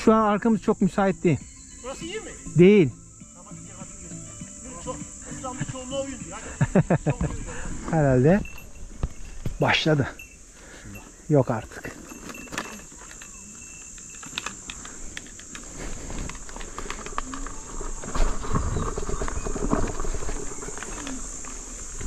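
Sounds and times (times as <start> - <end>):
insects droning: 0.0 - 22.0
riding and wind rumble: 5.7 - 22.0
wheel crackling over twigs: 11.4 - 22.0.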